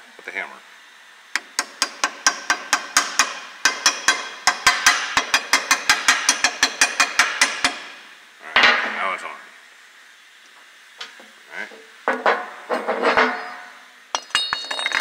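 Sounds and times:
hammer tapping on metal: 0:01.4 - 0:07.8.

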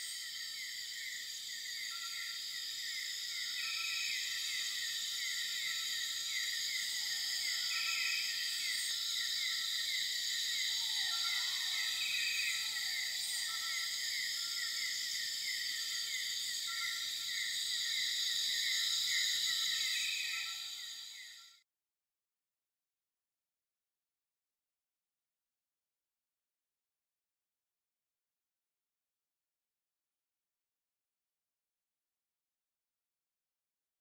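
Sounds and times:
crickets chirping: 0:00.0 - 0:21.6.

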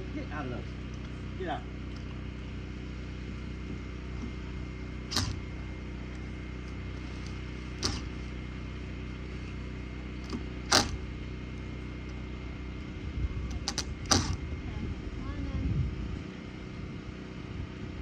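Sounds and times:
low motor hum: 0:00.0 - 0:18.0
sharp knocks: 0:05.1 - 0:05.5, 0:07.8 - 0:08.2, 0:10.3 - 0:11.0, 0:13.6 - 0:14.4.

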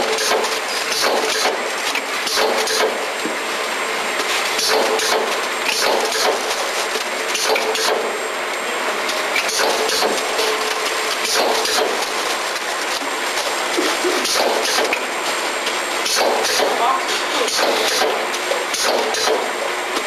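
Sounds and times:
machine clacks: 0:00.0 - 0:03.1, 0:04.2 - 0:08.1, 0:09.1 - 0:19.6
packaging machine clatter: 0:00.0 - 0:08.2, 0:09.0 - 0:20.0.

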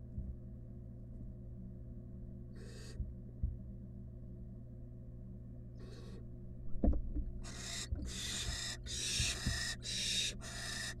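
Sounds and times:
steady low hum: 0:00.0 - 0:11.0
owl chicks hissing: 0:02.6 - 0:03.0, 0:05.8 - 0:06.2, 0:07.4 - 0:11.0
soft bumps of birds moving: 0:06.7 - 0:10.8.

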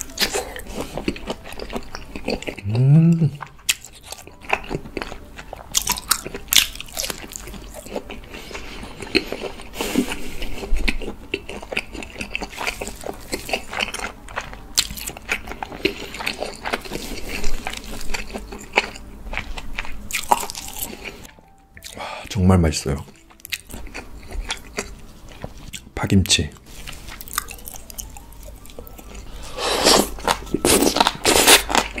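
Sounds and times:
biting and chewing crunchy meat: 0:00.0 - 0:22.2, 0:22.9 - 0:32.0.

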